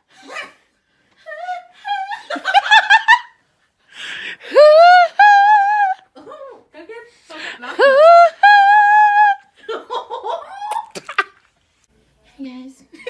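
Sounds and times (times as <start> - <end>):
woman laughing: 1.2 - 3.4, 7.6 - 11.4.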